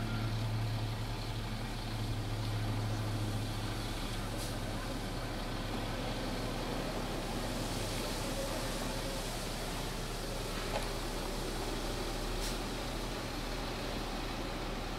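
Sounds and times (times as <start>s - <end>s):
truck engine droning: 0.0s - 14.9s
steady hiss: 6.2s - 13.3s.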